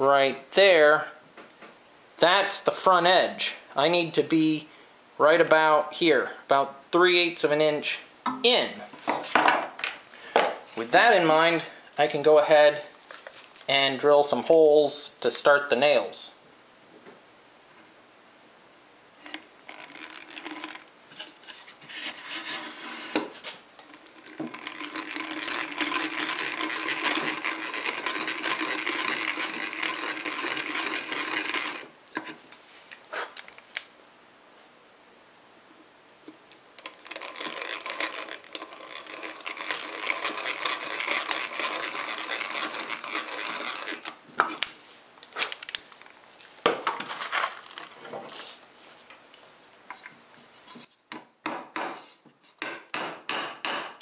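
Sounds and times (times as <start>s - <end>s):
hand drill cutting through wood: 19.3s - 20.9s, 23.8s - 31.9s, 36.8s - 44.2s
sharp knocks: 52.6s - 54.0s.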